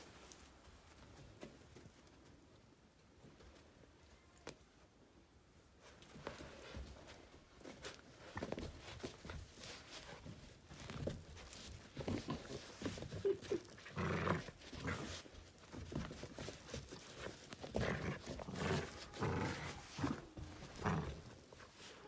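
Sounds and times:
dog growling in play: 12.0 - 21.6.

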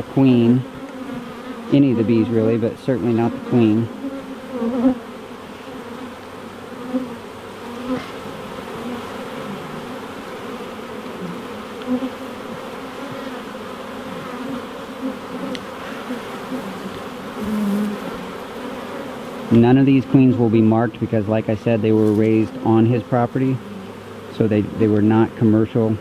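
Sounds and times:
honey bees buzzing: 0.0 - 26.0.

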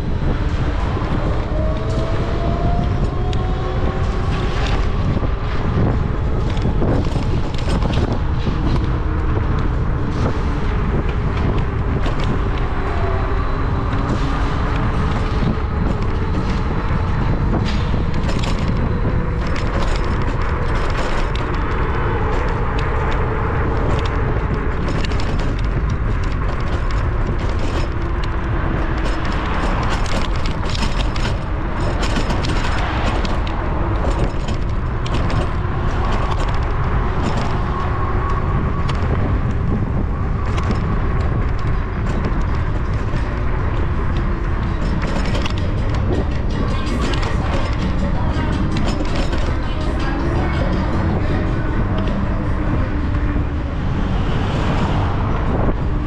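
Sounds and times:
bicycle rattles and clicks: 0.0 - 56.0
road rumble: 0.0 - 56.0
wind on microphone: 0.0 - 56.0.

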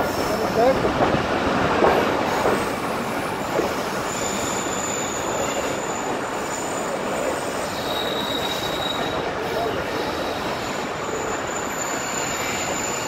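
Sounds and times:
train rumbling on rails: 0.0 - 13.0
wheel squeal: 4.0 - 13.0.

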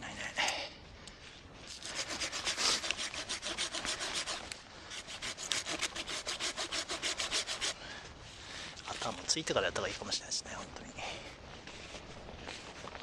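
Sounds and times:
hand saw cutting wood: 1.7 - 7.8.

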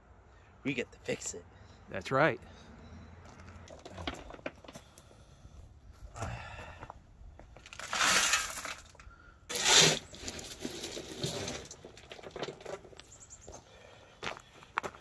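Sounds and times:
stone ballast crunching: 7.4 - 13.2.

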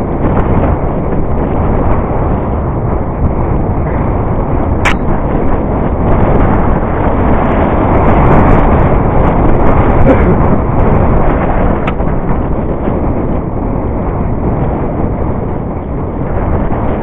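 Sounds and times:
wind rushing over microphone: 0.0 - 17.0
sharp knock: 4.8 - 5.1.

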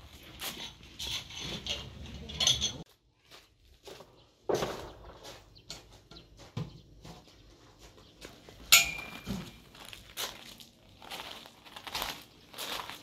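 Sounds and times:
footsteps crunching on gravel: 2.9 - 13.0
metallic clank ringing: 8.7 - 9.6.

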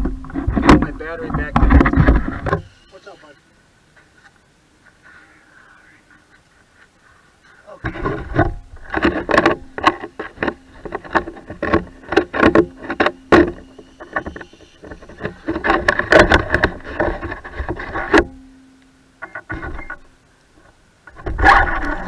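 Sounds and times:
knocks and scrapes on microphone: 0.0 - 2.7, 7.8 - 18.3
faint steady hum: 0.0 - 22.0.

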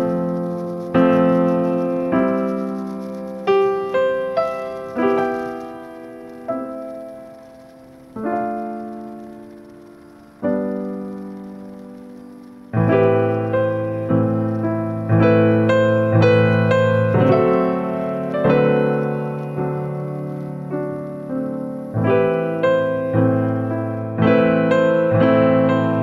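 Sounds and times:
piano chords: 0.0 - 26.0.

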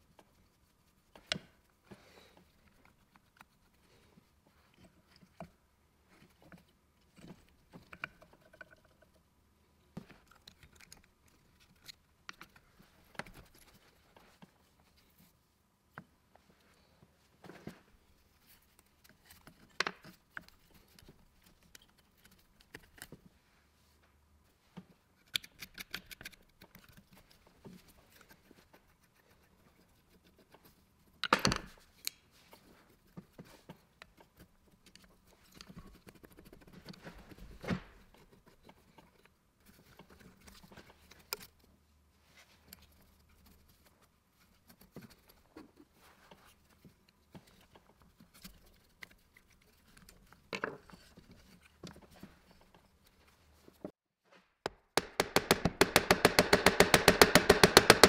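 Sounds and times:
rustling: 31.7 - 54.6.

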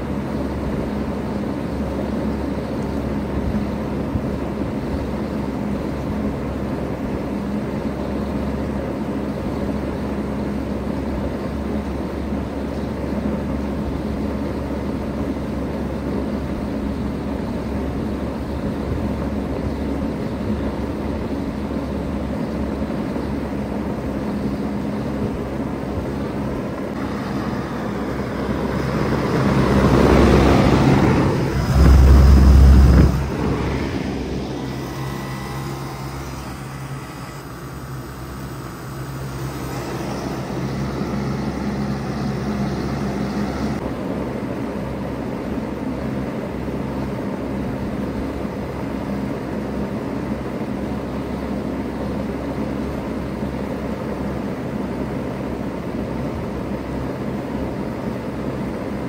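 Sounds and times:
heat pump humming: 0.0 - 59.0
rushing air swell: 26.9 - 43.8
strong low rumble: 27.0 - 36.6.

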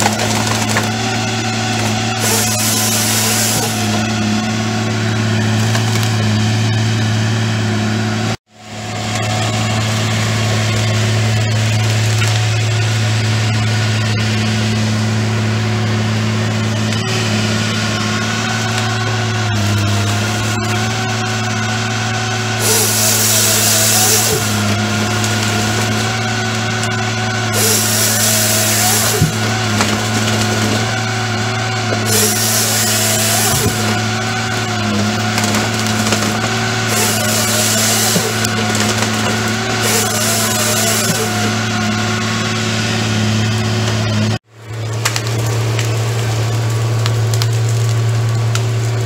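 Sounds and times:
saw cutting with rasping hiss: 0.0 - 4.4, 22.6 - 42.3
heavy machine engine humming: 0.0 - 49.0.

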